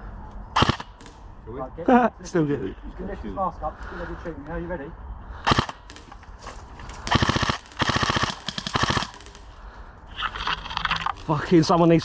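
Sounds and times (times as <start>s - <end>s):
airsoft rifle firing bursts: 0.6s - 1.1s, 5.5s - 6.0s, 7.0s - 9.4s.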